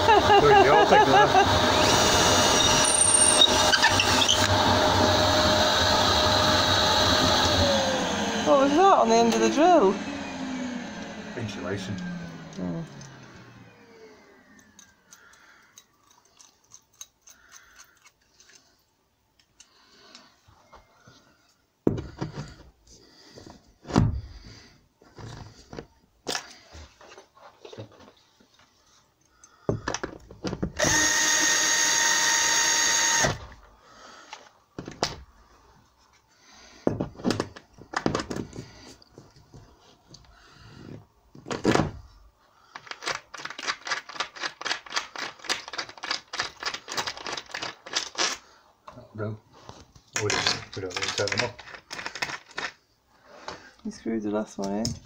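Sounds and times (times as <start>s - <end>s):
drill running: 0.0s - 14.6s, 30.8s - 33.6s.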